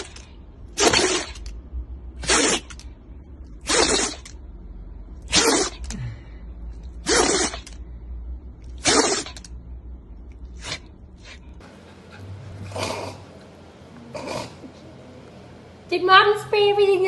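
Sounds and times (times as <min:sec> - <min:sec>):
dog sneezing: 0:00.8 - 0:01.5, 0:02.2 - 0:02.8, 0:03.6 - 0:04.3, 0:05.2 - 0:06.0, 0:07.0 - 0:07.8, 0:08.8 - 0:09.5, 0:10.6 - 0:11.4, 0:14.1 - 0:14.7.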